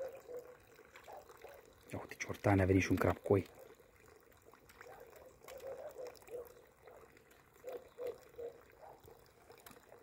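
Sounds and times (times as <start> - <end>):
fish slurping at water surface: 0.0 - 10.0.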